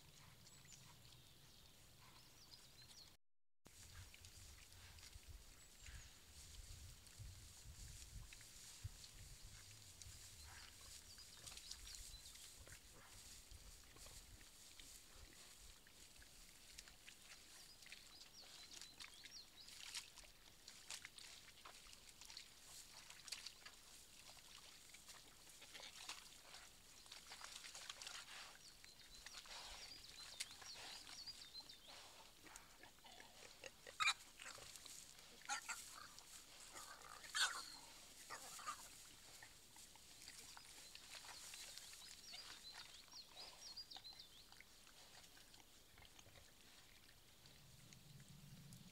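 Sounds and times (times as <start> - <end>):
wild boar piglets grunting: 29.3 - 47.7.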